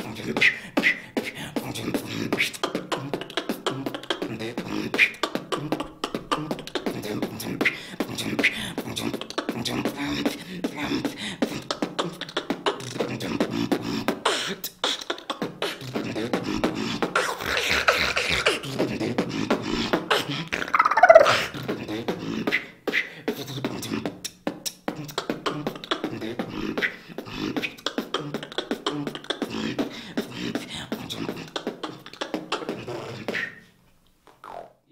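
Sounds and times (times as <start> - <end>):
person beatboxing: 0.0 - 33.7
falling vocal sweep: 15.9 - 23.1.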